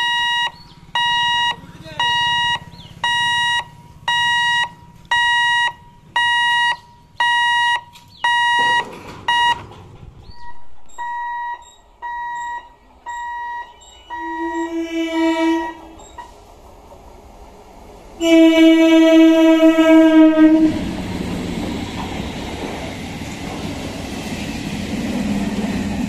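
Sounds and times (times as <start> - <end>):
level crossing buzzer beeping: 0.0 - 9.6, 10.5 - 16.2
train horn: 13.7 - 16.3, 18.2 - 21.0.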